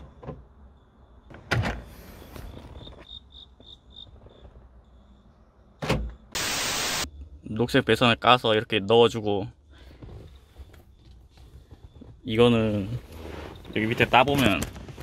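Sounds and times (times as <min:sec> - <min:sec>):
static hiss: 0:06.4 - 0:07.1.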